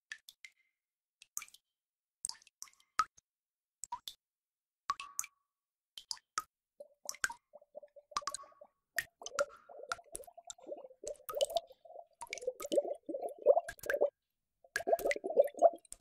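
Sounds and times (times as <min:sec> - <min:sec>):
water bubbling: 0:06.8 - 0:14.1, 0:14.7 - 0:16.0
water drops plopping: 0:06.8 - 0:14.1, 0:14.7 - 0:16.0.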